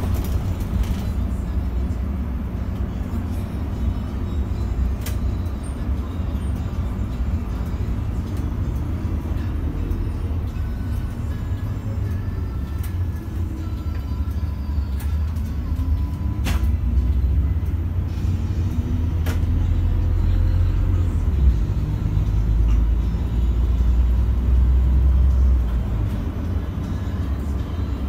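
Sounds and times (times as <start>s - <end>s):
bus engine rumble: 0.0s - 28.0s.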